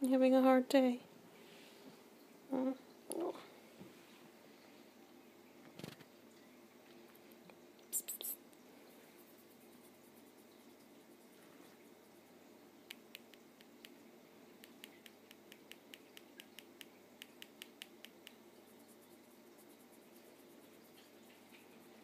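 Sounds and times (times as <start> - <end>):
kitten grooming clicks: 12.8 - 14.0, 14.6 - 18.4.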